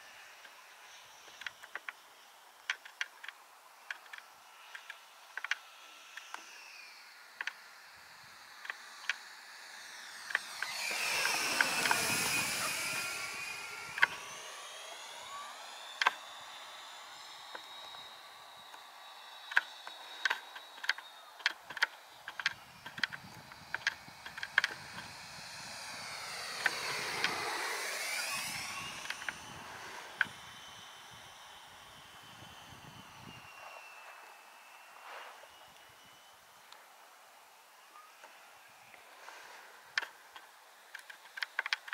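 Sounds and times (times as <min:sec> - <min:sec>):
model jet fan whine: 0:00.0 - 0:41.9
sharp clicks: 0:10.2 - 0:30.5.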